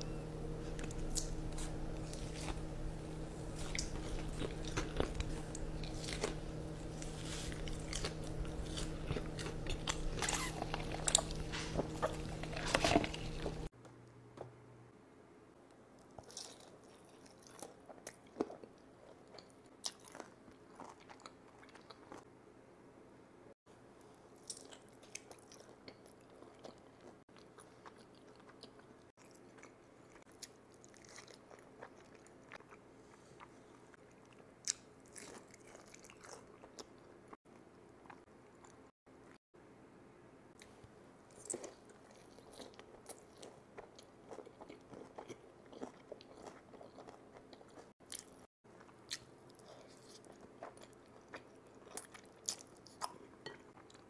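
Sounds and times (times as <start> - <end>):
person chewing food: 0.0 - 13.7, 16.0 - 22.2, 24.3 - 39.4, 40.6 - 54.0
steady low hum: 0.0 - 15.6.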